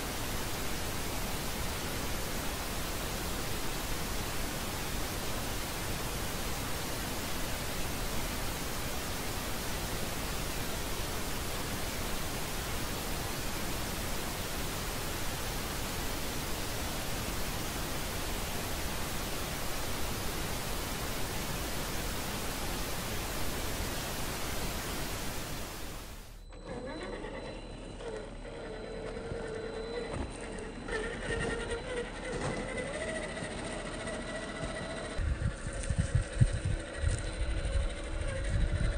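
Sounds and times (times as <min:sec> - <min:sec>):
rushing static hiss: 0:00.0 - 0:26.4.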